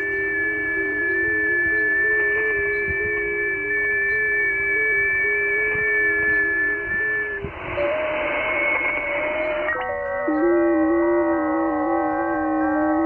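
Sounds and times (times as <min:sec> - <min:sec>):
radio band noise hiss: 0:00.0 - 0:11.0
stepped digital radio tones: 0:00.8 - 0:10.6.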